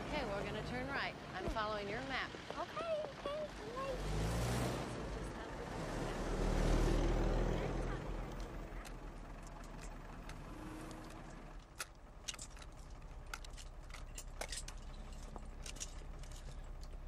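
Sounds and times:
vehicle interior hum: 0.0 - 17.0
small sharp clicks and rattles: 8.3 - 17.0.

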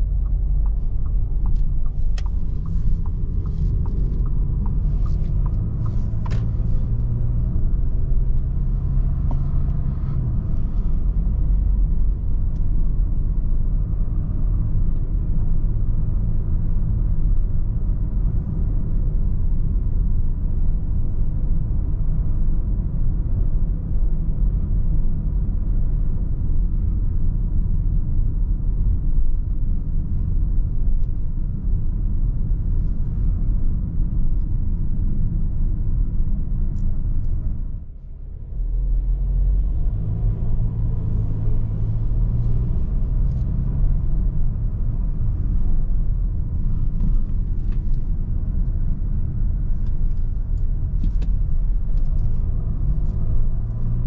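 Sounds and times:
engine and tyres rumbling: 0.0 - 54.0.

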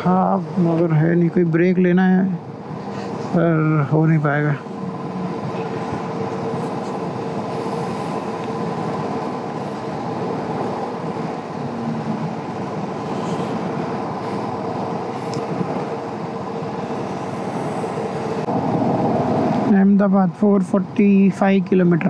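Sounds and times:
motorcycle engine hum: 0.0 - 20.0
tyres hissing on wet road: 2.7 - 19.7
wind on microphone: 4.6 - 20.0.

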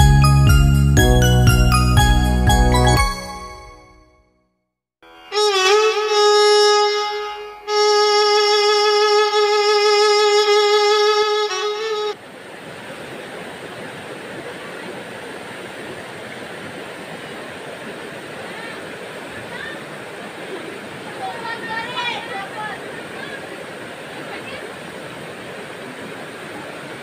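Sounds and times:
river flowing over rocks: 12.2 - 27.0.

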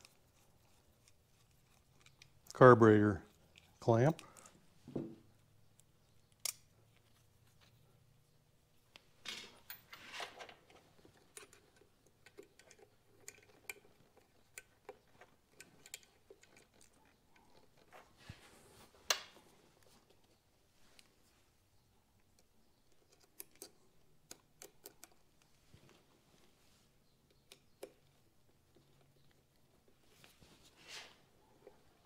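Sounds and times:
screwdriver and metal parts clicking: 0.0 - 2.5, 9.4 - 17.9, 22.4 - 25.2.

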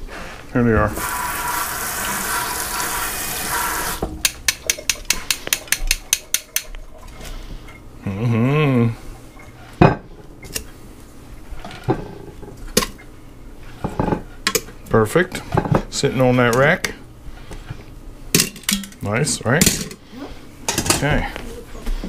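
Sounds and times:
tongs clacking against pot: 4.2 - 6.8
person humming: 8.0 - 9.0.

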